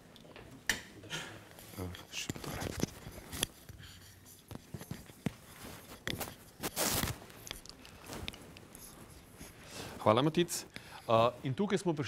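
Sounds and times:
microphone rubbing rustle: 4.5s - 10.0s.

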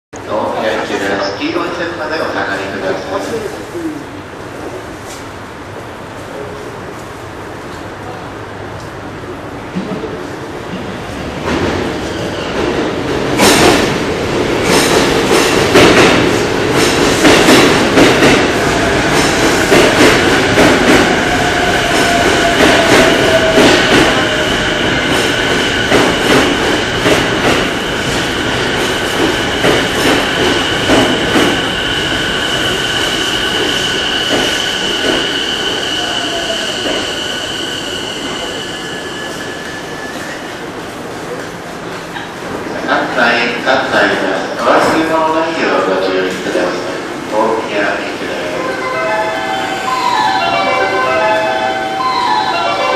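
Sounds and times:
electric train arriving: 0.2s - 52.9s
high brake squeal: 32.5s - 40.5s.

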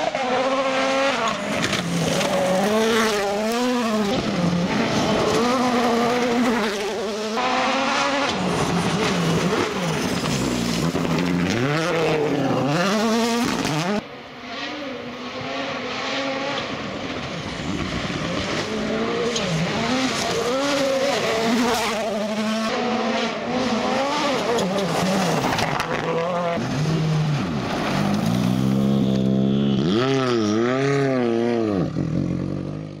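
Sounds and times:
rally car engine revving: 0.0s - 33.0s.

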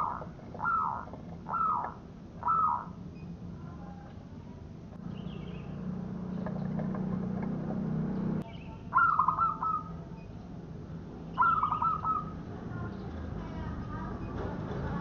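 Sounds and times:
dove cooing: 0.0s - 3.0s, 8.9s - 10.0s, 11.4s - 12.4s.

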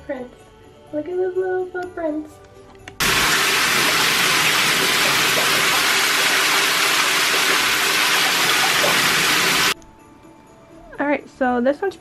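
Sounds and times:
water rushing from bathtub tap: 3.0s - 9.8s.

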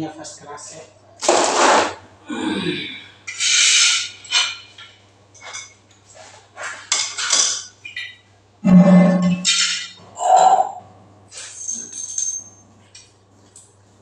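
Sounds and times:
parts clinking: 6.9s - 10.0s, 11.4s - 13.1s.

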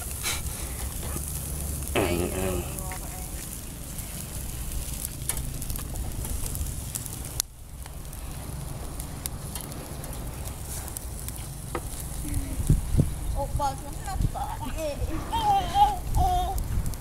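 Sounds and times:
crackles and pops from coals: 0.0s - 17.0s
food sizzling on charcoal grill: 0.0s - 17.0s.

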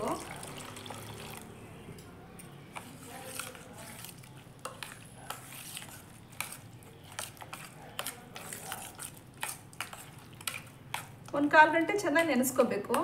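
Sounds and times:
wet mixture squelching: 0.0s - 1.8s, 2.5s - 11.6s
clicks and scrapes on steel bowl: 2.7s - 11.1s.

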